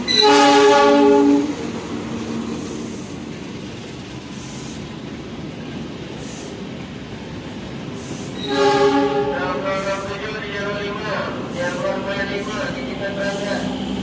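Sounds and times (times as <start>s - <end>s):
train wheels rumbling on rail: 0.0s - 14.0s
locomotive horn blast: 0.1s - 1.6s, 8.4s - 10.8s.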